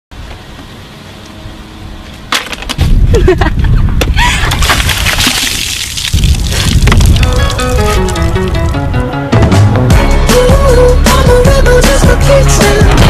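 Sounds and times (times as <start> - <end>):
water splashing from bucket: 4.5 - 8.4.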